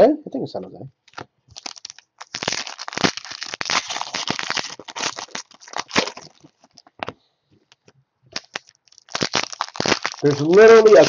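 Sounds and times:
foil wrapper crinkling: 1.1 - 7.0, 8.3 - 11.0.

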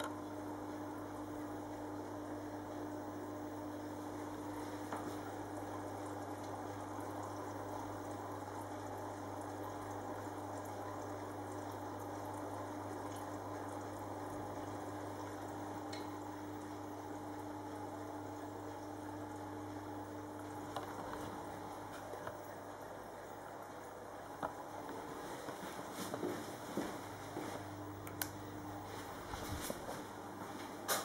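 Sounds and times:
low electrical pump hum: 0.0 - 31.0
water bubbling and trickling: 3.8 - 25.5.

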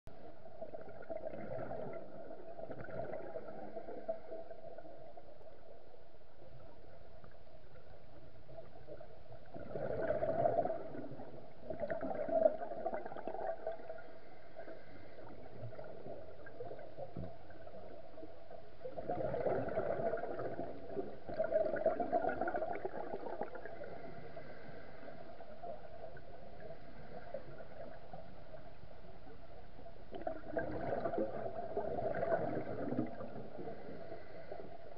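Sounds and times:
dull underwater hum: 0.1 - 34.9
diver's bubbles gurgling: 0.4 - 5.6, 8.5 - 24.5, 30.1 - 34.6.

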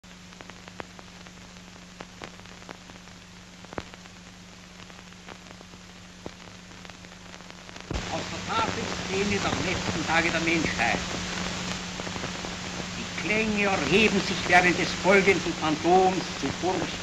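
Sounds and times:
film soundtrack hiss: 0.0 - 17.0
low hum: 3.4 - 17.0.

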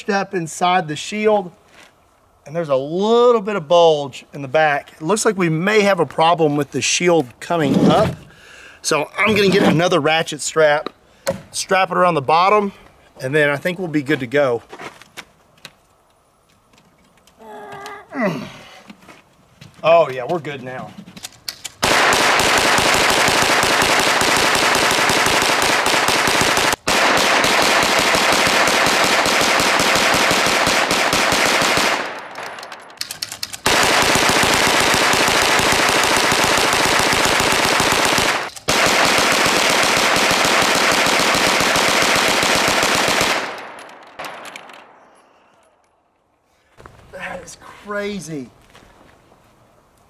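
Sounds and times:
gatling gun rapid firing: 21.8 - 32.2, 33.1 - 44.4.

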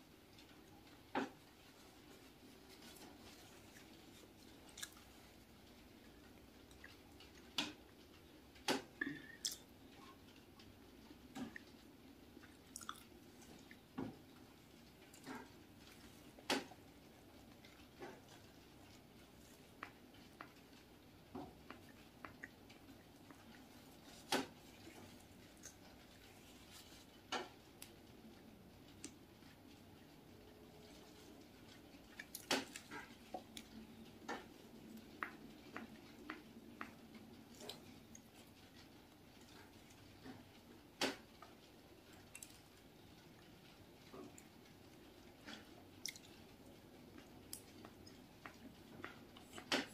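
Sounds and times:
chewing soft bread: 0.0 - 49.9
crisp bun topping crackling: 0.3 - 29.9.

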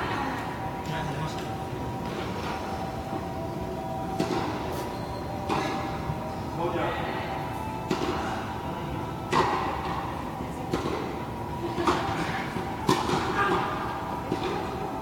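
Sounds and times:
tennis ball bouncing: 10.7 - 11.1
racket striking tennis ball: 11.8 - 14.6.

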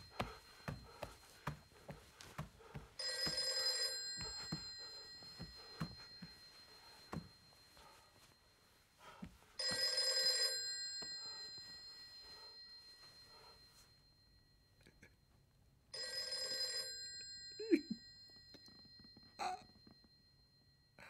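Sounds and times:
bell ringing: 3.0 - 8.5, 9.6 - 14.5, 16.0 - 20.8.

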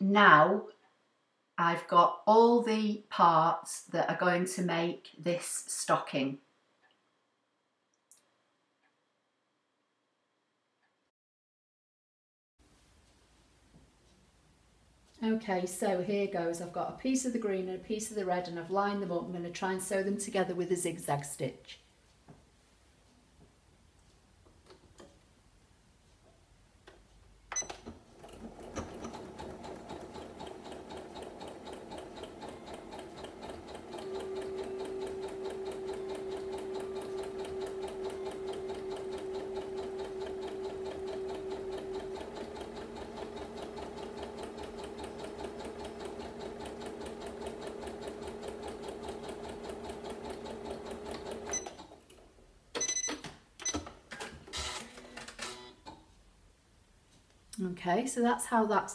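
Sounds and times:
sewing machine clicks: 27.5 - 52.2
sewing machine stitching: 27.6 - 52.1.

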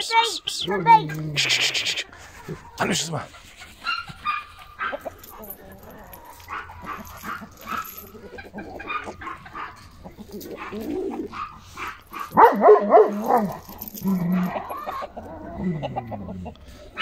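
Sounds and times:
chickens clucking: 0.0 - 12.4, 13.7 - 17.0
large dog barking: 3.9 - 5.5, 6.2 - 16.3.

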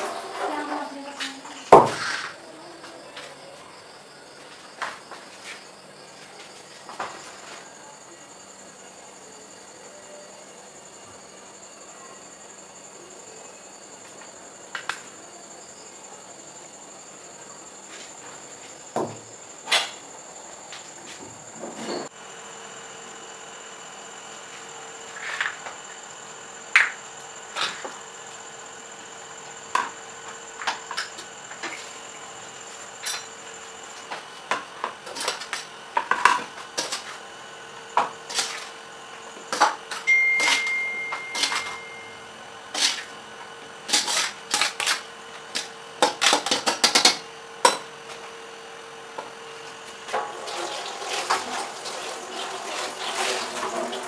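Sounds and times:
faint steady hum: 0.0 - 46.6
kitchenware clinking and scraping: 21.6 - 22.1, 40.0 - 42.2.

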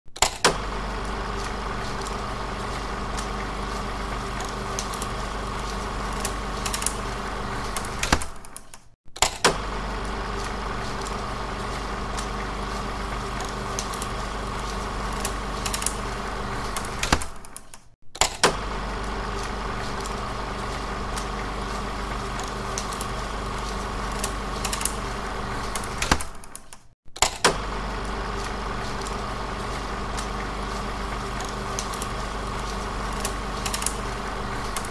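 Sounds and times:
film projector whirring: 0.2 - 34.9
sharp projector clicks: 22.4 - 27.6, 31.0 - 34.9.

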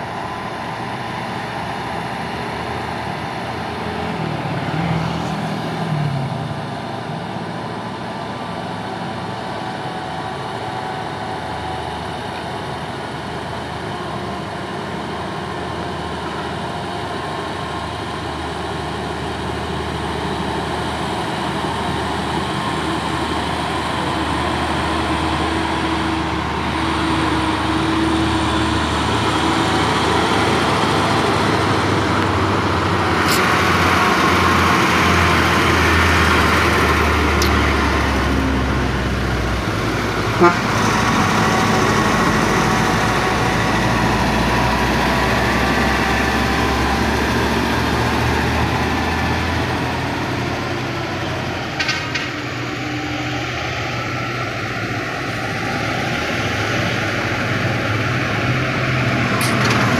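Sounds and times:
diesel truck engines rumbling: 0.0 - 59.9
vehicle horn tooting: 40.4 - 40.7.

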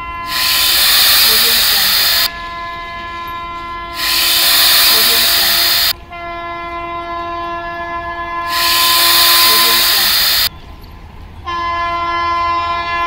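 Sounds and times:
train horn: 0.0 - 10.5, 11.4 - 13.0
loud bursts of hiss: 0.3 - 2.3, 4.0 - 6.0, 8.5 - 10.5.

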